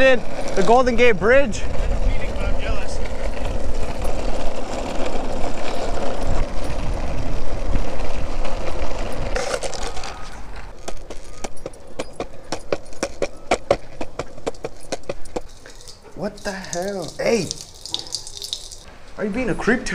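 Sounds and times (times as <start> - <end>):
longboard wheels rolling on asphalt: 0.0 - 19.9
wheels clacking over path joints: 0.0 - 19.9.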